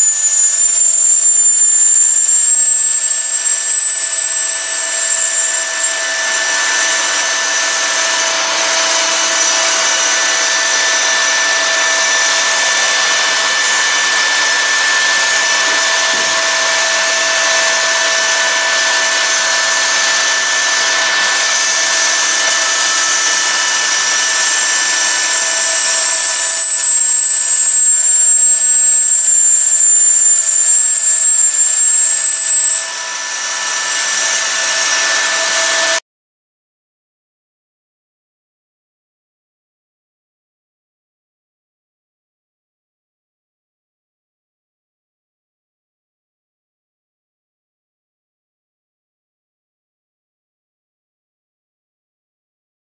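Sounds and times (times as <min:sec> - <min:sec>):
dust extraction hiss: 0:00.0 - 0:36.0
high whistle: 0:00.0 - 0:36.0
router spindle high whine: 0:00.0 - 0:36.0.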